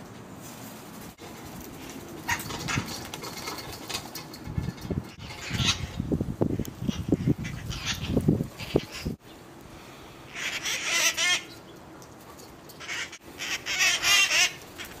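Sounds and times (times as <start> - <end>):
parakeets squawking: 5.2 - 6.0, 6.8 - 9.2, 10.3 - 11.6, 12.8 - 15.0.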